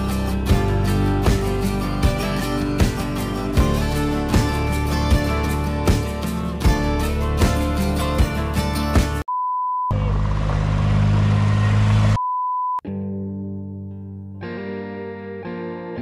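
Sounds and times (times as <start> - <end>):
guitar music: 0.0 - 9.2, 12.8 - 16.0
background music with steady beat: 0.0 - 9.3
short electronic beep: 9.3 - 10.0, 12.2 - 12.8.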